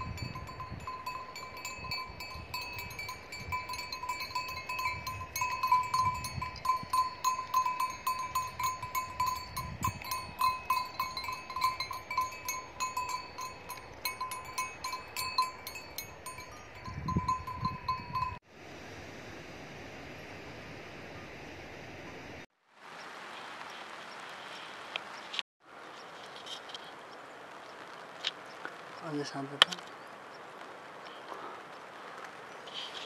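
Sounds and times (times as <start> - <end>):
livestock bells jingling: 0.0 - 18.4.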